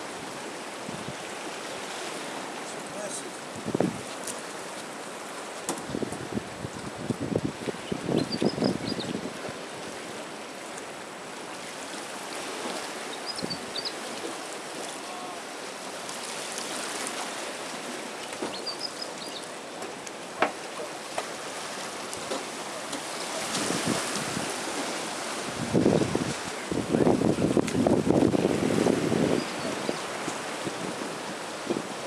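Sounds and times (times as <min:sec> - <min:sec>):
small waves lapping: 0:00.0 - 0:08.1, 0:08.8 - 0:32.0
wind on microphone: 0:03.5 - 0:04.2, 0:05.8 - 0:09.6, 0:23.2 - 0:32.0.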